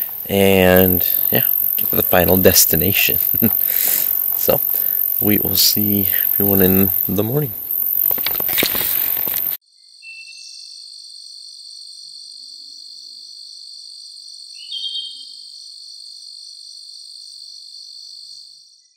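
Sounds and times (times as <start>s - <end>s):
crickets chirping: 0.0s - 9.6s
rustling handling noise: 0.0s - 9.6s.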